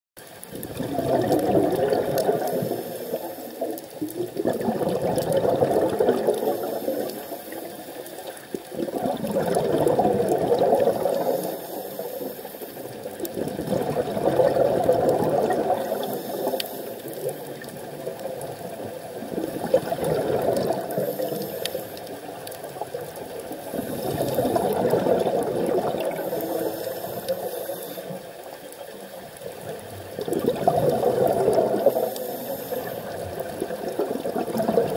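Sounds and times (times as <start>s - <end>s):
exhaled bubbles rushing: 0.4s - 34.9s
scuba regulator breathing: 2.2s - 3.9s, 6.2s - 8.5s, 11.0s - 13.0s, 15.4s - 17.6s, 20.8s - 22.3s, 23.5s - 25.4s, 26.0s - 28.4s, 31.6s - 33.4s.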